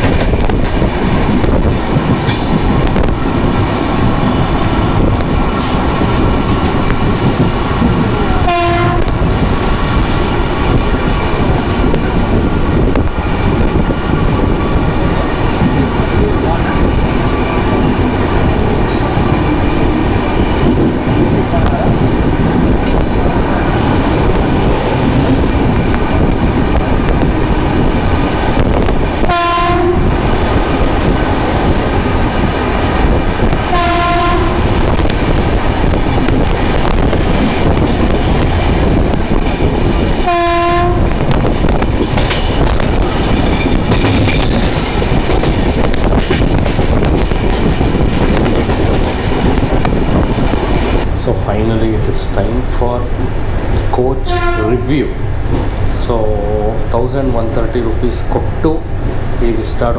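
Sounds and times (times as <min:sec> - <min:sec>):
train wheels rumbling on rails: 0:00.0 - 0:59.9
train horn short blasts: 0:08.4 - 0:09.2, 0:29.3 - 0:30.1, 0:33.7 - 0:34.7, 0:40.3 - 0:41.1, 0:54.2 - 0:54.9.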